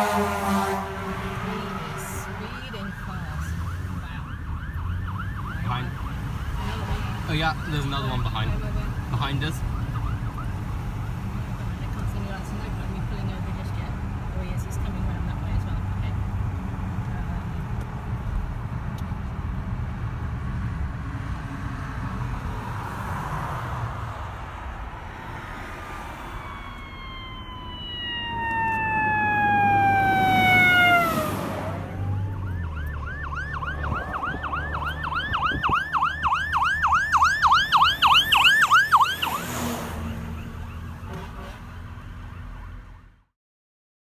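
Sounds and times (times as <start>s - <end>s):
fire truck siren: 0.0s - 11.5s, 25.0s - 43.2s
car road rumble: 0.0s - 43.1s.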